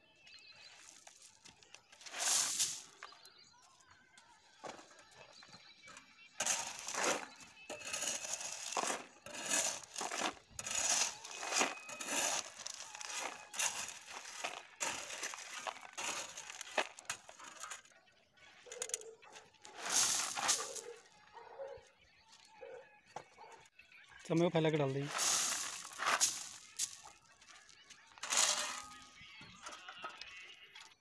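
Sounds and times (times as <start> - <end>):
shovel scraping crushed stone: 2.0 - 3.1, 6.4 - 17.9, 19.6 - 21.0, 25.0 - 27.2, 28.2 - 29.1
stones rattling into steel pan: 2.1 - 2.9, 6.4 - 17.9, 19.7 - 20.9, 25.1 - 27.1, 28.2 - 29.1.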